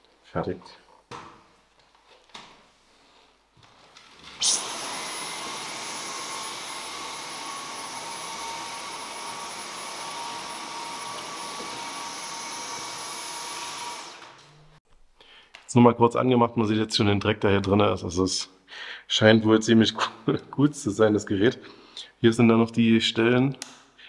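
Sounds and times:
vacuum cleaner motor whining: 4.2 - 14.8.

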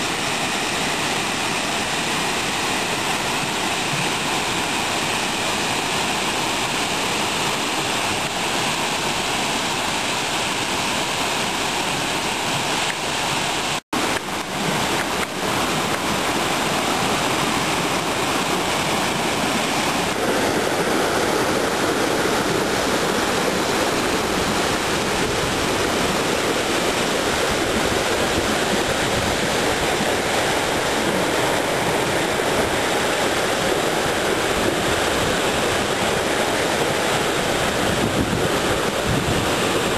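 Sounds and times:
waterfall rushing onto rock: 0.0 - 39.9.

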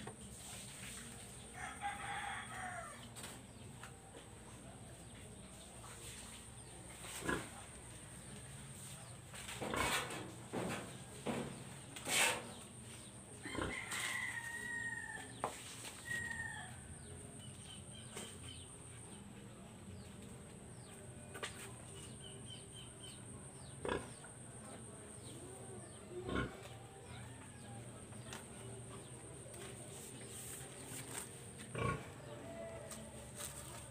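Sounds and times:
rooster crowing: 13.5 - 15.3.

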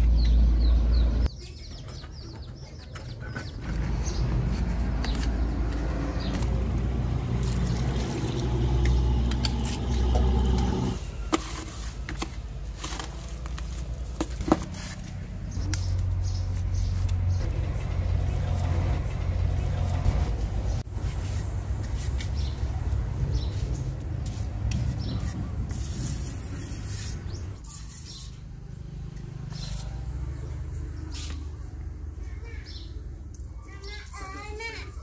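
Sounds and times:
birds chirping: 0.0 - 11.4, 15.3 - 21.6, 22.2 - 24.0, 24.8 - 25.6, 26.9 - 35.0
shovel scraping through mortar: 23.4 - 28.5.

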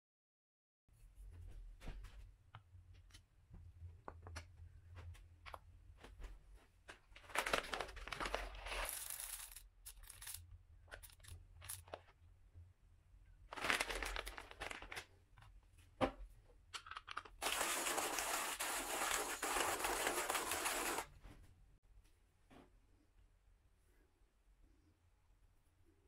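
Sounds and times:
coffee bag crinkling: 7.2 - 9.5, 13.5 - 15.1, 17.4 - 21.1
coffee beans rustling: 7.3 - 10.4, 17.4 - 21.1.

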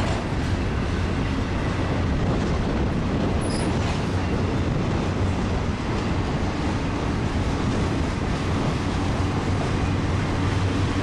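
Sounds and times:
freight train wheels rumbling: 0.0 - 11.0.

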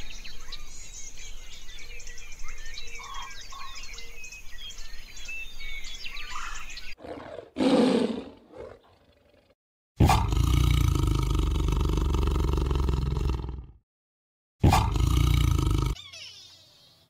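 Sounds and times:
small birds chirping: 0.0 - 7.5, 14.9 - 17.0
tiger growl: 7.0 - 13.8, 14.6 - 16.0
tiger roar: 7.0 - 13.8, 14.6 - 16.0.

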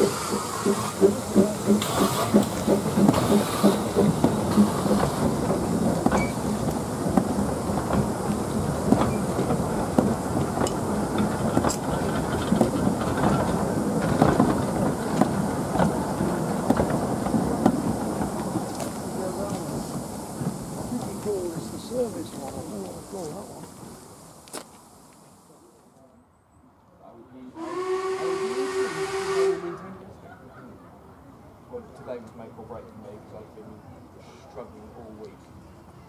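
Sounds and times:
wheels clicking over rail joints: 0.0 - 23.8
steam locomotive exhaust beats: 0.0 - 24.4, 27.6 - 30.0.

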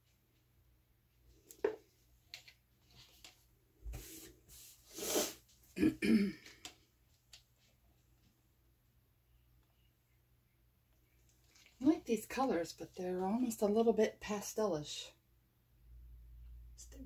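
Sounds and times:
person clearing throat: 5.8 - 6.6.

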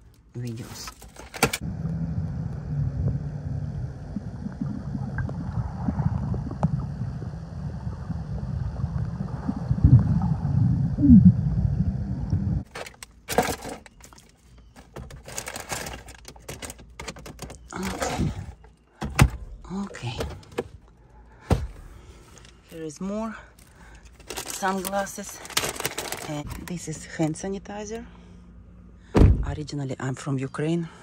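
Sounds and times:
underwater rumble and gurgling: 1.6 - 12.6
pouch rustling and clicks: 23.6 - 26.7.

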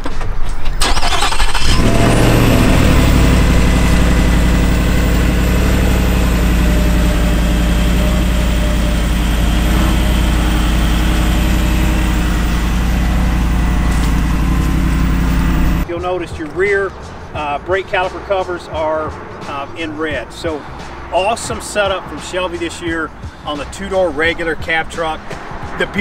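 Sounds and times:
engine cranking: 0.6 - 15.8
engine revving and idling: 0.8 - 15.8.

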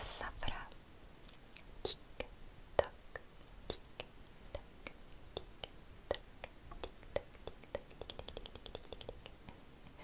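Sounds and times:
crisp clicks at a microphone: 6.7 - 9.4.

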